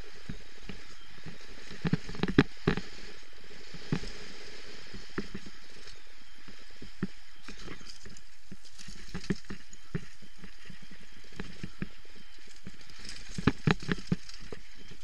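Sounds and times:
steady rushing noise: 0.0 - 15.0
bike knocking on rocks: 12.6 - 14.7.

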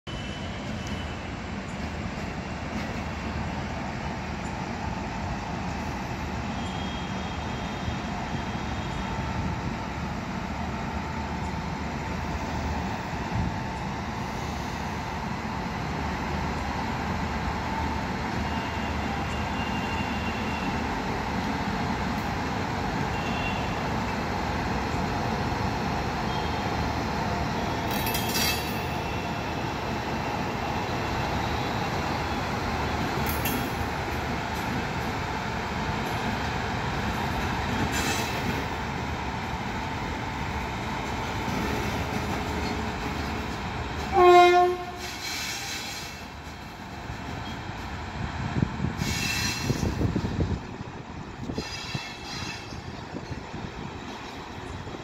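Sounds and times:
electric locomotive humming: 0.1 - 55.0
brief hiss: 45.0 - 46.3.

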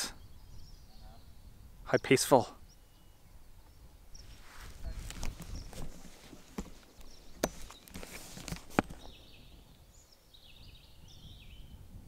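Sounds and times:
small bird chirping: 0.1 - 6.0.

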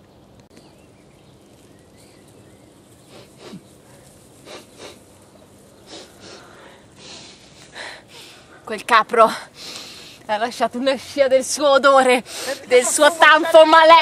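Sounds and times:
faint background hiss: 0.0 - 14.0
person sniffing: 3.1 - 3.7, 4.4 - 5.1, 5.8 - 8.4.

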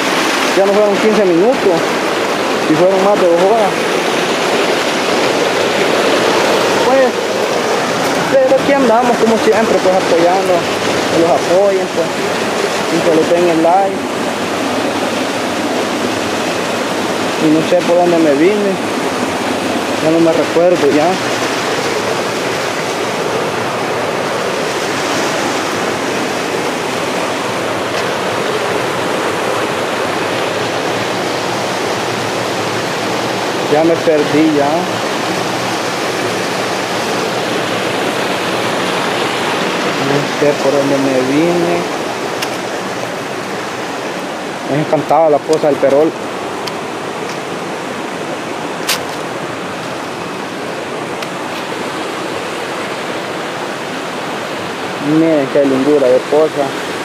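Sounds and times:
river water rushing over rocks: 0.0 - 57.0
sharp click: 48.8 - 49.3.

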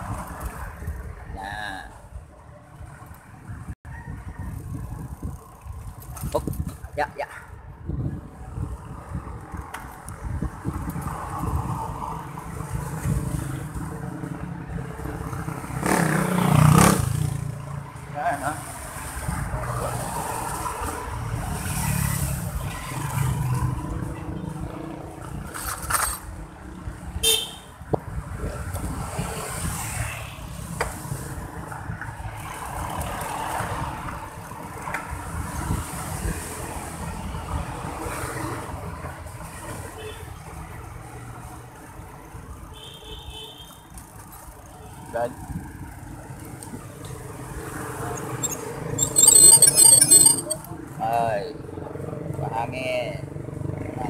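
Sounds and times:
road noise: 0.0 - 54.0
traffic: 0.0 - 54.0
wind buffeting microphone: 2.8 - 14.0
vehicle horn toot: 27.2 - 27.7.

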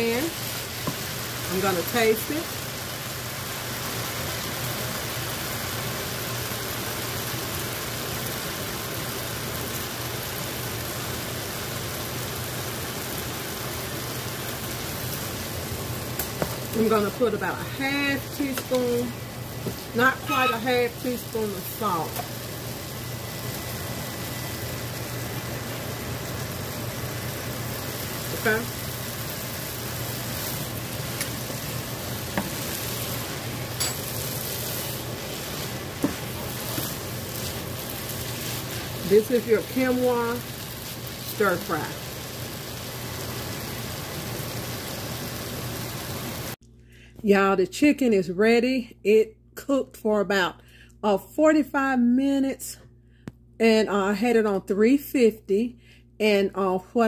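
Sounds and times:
stir-fry hissing in pan: 0.0 - 46.6.

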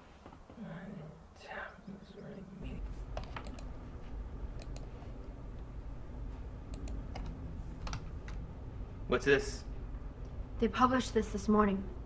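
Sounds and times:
low hum: 1.8 - 12.0
keyboard typing clicks: 3.1 - 3.7, 4.5 - 4.9, 6.7 - 8.4.

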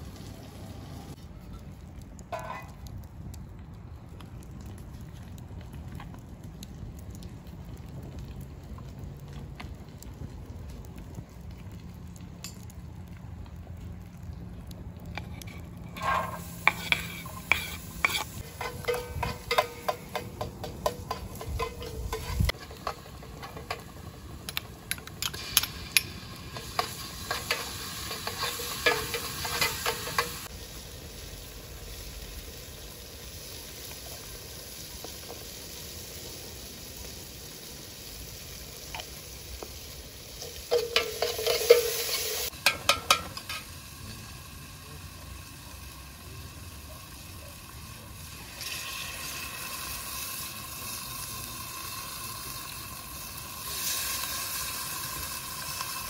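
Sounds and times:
sizzling hiss: 15.1 - 56.0
spoon scraping metal pot: 15.2 - 23.8, 25.2 - 30.5, 40.4 - 43.6.

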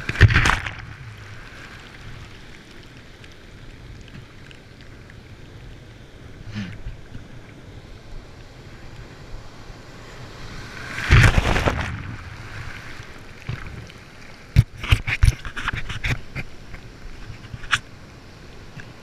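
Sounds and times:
water splashes and knocks: 0.0 - 1.4, 11.0 - 17.8
breaking surf: 0.0 - 2.4, 9.4 - 13.8.

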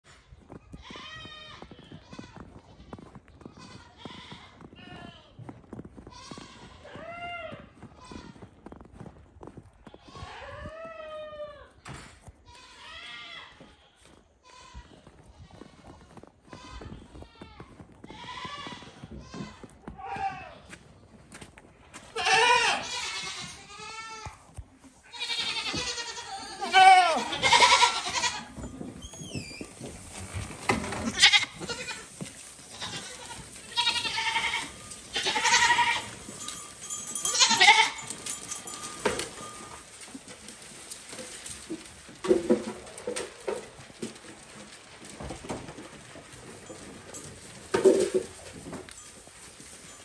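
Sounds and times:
hooves knocking and scuffing: 0.0 - 50.0
goats bleating: 0.7 - 5.4, 22.1 - 24.4, 25.0 - 29.5, 30.1 - 38.6.

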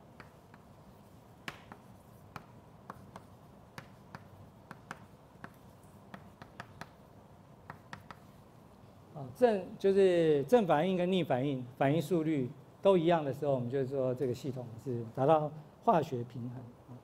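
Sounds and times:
chalk clicking on blackboard: 0.0 - 8.5.

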